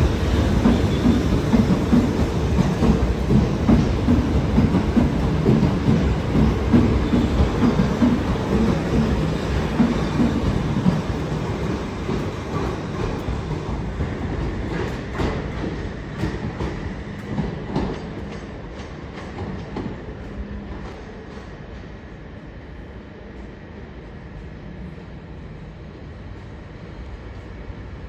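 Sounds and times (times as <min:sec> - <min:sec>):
electric train rumbling: 0:00.0 - 0:28.0.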